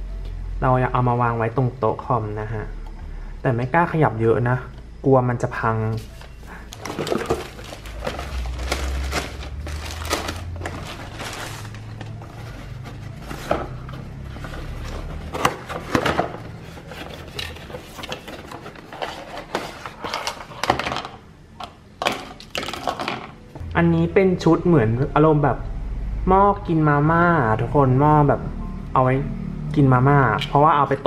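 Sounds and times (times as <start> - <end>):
cardboard packaging rustling: 5.9 - 20.8
plastic utensils clattering: 6.7 - 23.4.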